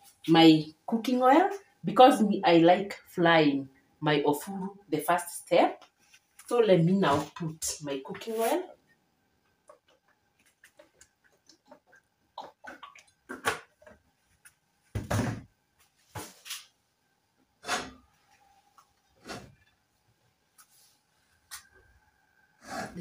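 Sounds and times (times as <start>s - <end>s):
thump: 15.0s - 15.5s
knocks and scrapes: 17.6s - 18.1s, 19.2s - 19.6s.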